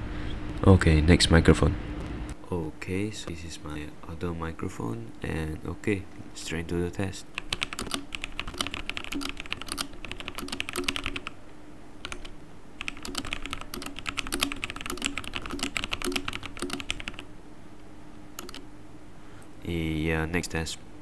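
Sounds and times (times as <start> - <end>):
keyboard typing clicks: 7.4 - 11.3, 12.0 - 17.3, 18.4 - 18.6.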